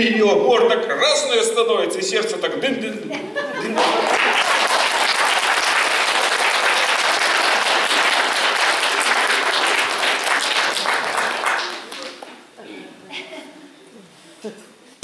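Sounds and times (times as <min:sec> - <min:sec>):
audience applauding: 0:03.7 - 0:12.4.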